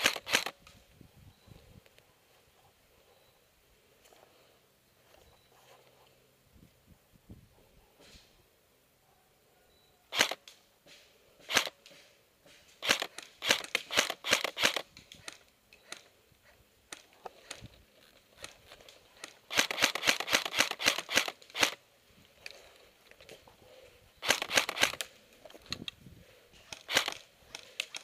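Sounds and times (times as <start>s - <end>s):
airsoft rifle shots: 10.1s - 10.4s, 12.8s - 16.0s, 19.2s - 21.8s, 24.2s - 25.1s, 26.7s - 27.2s.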